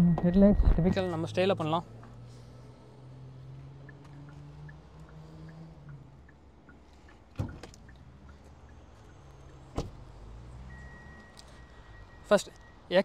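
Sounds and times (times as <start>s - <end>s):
car door shutting: 7.3s - 7.9s, 9.7s - 10.0s.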